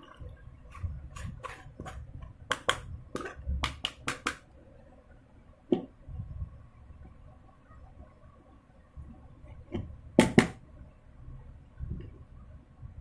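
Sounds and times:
spoon scraping a mesh strainer: 0.7s - 2.1s.

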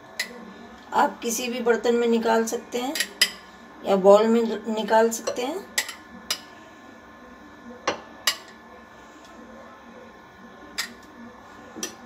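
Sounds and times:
utensil clinking on dishes: 2.9s - 3.4s, 5.2s - 6.5s, 7.8s - 8.6s.

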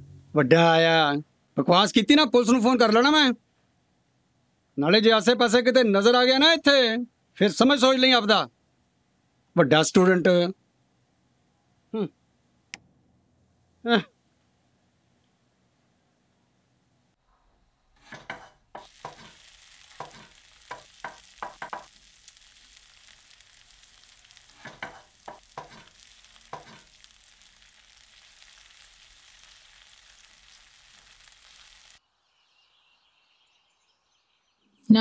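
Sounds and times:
food sizzling in a pot: 18.0s - 33.1s
utensil knocking against pot: 20.0s - 21.9s, 24.6s - 25.8s.

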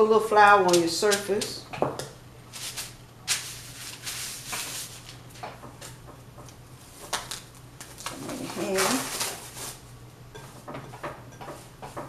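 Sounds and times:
hand swishing on parchment paper: 2.5s - 5.1s.

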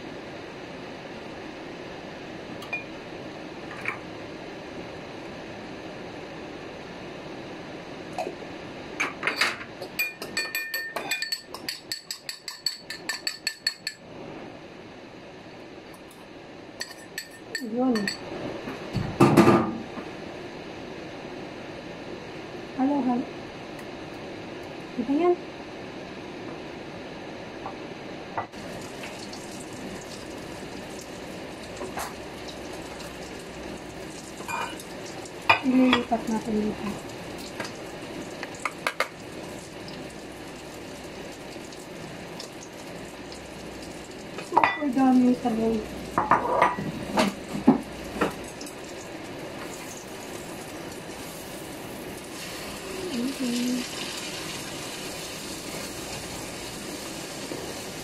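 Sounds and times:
metal utensil clinking on ceramic bowl: 10.0s - 14.0s.

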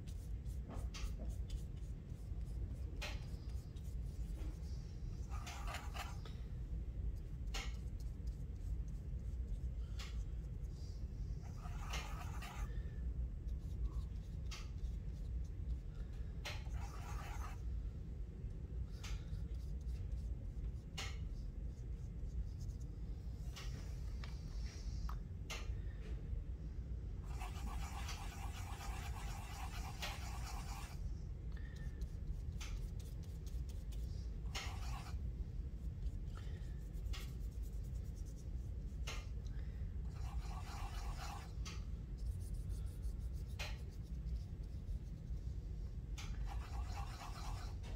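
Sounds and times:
paintbrush scrubbing on paint cake: 0.0s - 6.2s, 7.0s - 12.8s, 13.4s - 17.7s, 27.2s - 39.4s, 40.0s - 47.9s
steady low hum: 0.0s - 47.9s.

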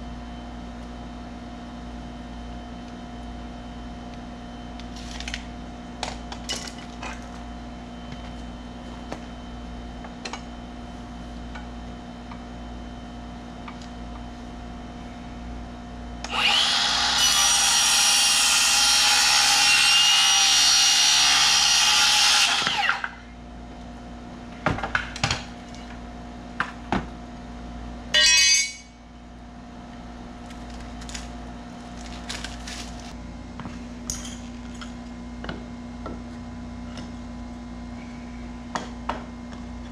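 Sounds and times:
circular saw cutting board: 16.3s - 23.2s.

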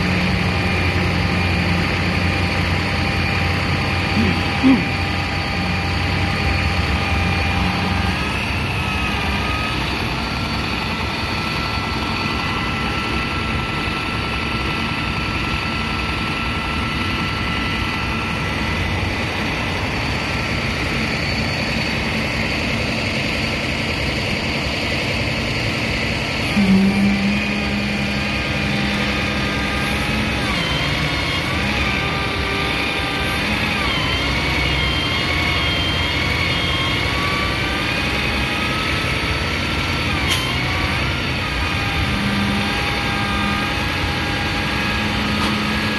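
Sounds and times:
tow truck engine running: 0.0s - 45.9s
whining loading gear: 26.4s - 45.9s.

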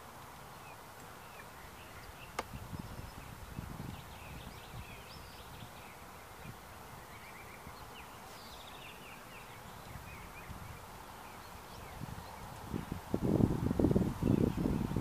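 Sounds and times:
wild birds chirping and trilling: 0.0s - 13.1s
faint background hiss: 0.0s - 15.0s.

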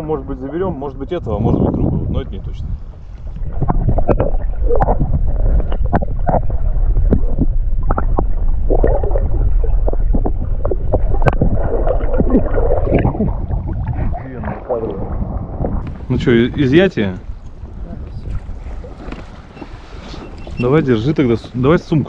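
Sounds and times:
underwater rumble: 1.2s - 21.9s
gurgling bubbles: 3.3s - 16.1s.

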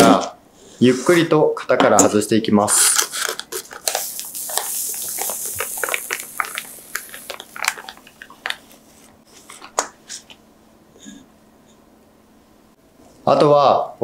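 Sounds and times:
baking paper crinkling: 2.9s - 10.3s.

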